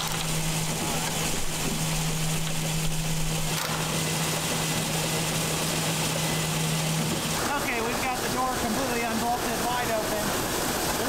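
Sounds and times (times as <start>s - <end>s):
motor humming: 0.0s - 11.0s.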